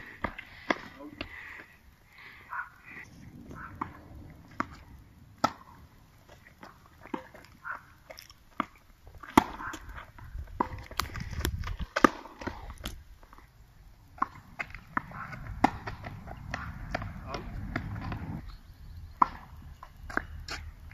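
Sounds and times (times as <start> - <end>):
tennis ball bouncing on court: 14.2 - 18.4
tennis ball struck by rackets: 14.2 - 18.4.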